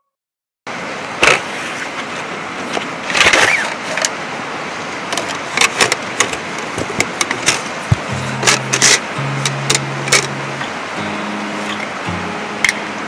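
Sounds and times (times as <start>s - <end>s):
steady hiss: 7.6s - 13.0s.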